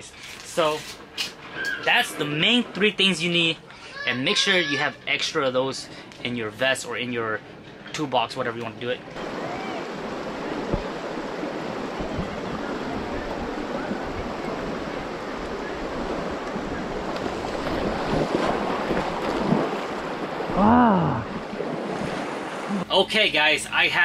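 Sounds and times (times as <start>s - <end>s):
river water rushing over rocks: 9.2s - 22.5s.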